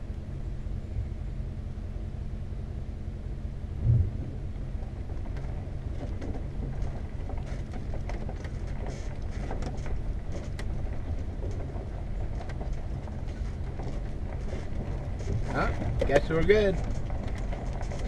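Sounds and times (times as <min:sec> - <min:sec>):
engine running at low speed: 0:00.0 - 0:18.0
low thump: 0:03.8 - 0:04.5
light clicks and crackles: 0:04.5 - 0:18.0.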